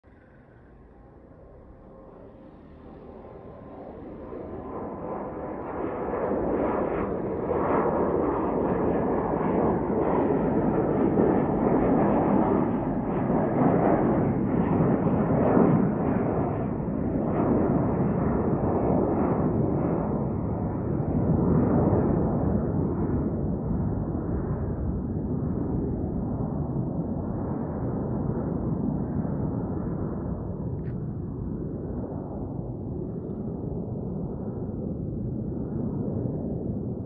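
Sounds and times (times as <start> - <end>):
jet engines roaring: 0.2 - 20.4.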